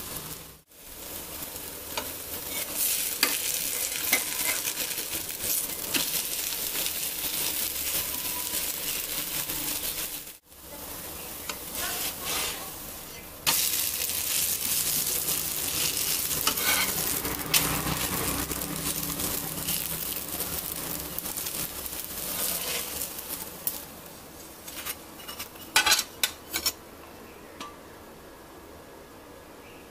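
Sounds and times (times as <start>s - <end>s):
pancake sizzling in oil: 0.0s - 26.4s
steel spatula scraping griddle: 1.9s - 10.3s, 11.4s - 23.8s, 24.6s - 26.8s.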